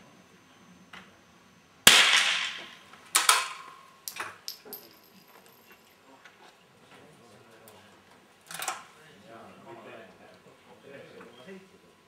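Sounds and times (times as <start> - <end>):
rifle shot with echo: 1.9 - 3.6.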